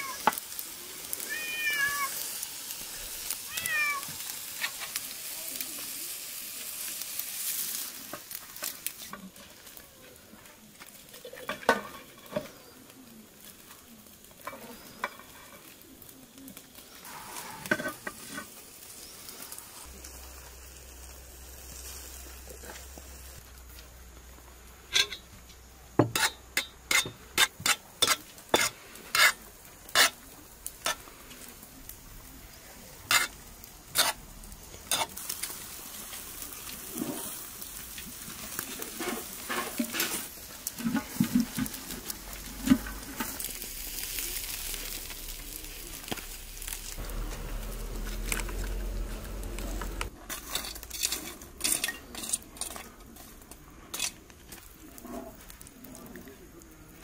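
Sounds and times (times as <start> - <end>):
food sizzling over charcoal: 0.0 - 57.0
utensils clinking against dishes: 24.9 - 25.2, 50.3 - 52.9.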